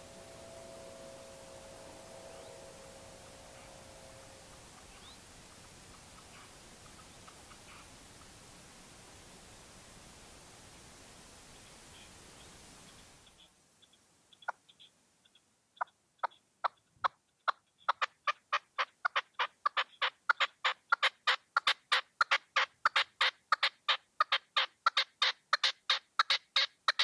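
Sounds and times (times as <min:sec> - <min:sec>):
partridge rasping call: 0:00.0 - 0:08.4, 0:12.9 - 0:27.0.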